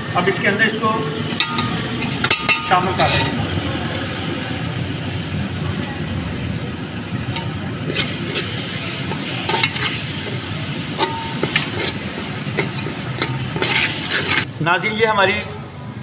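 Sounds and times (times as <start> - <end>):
spoon scraping steel pot: 1.3 - 3.4, 7.3 - 14.5
steady sizzling hiss: 4.3 - 15.2.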